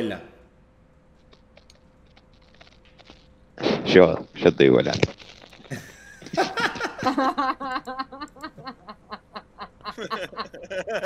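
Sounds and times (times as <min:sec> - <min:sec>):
person laughing: 0:05.7 - 0:11.0.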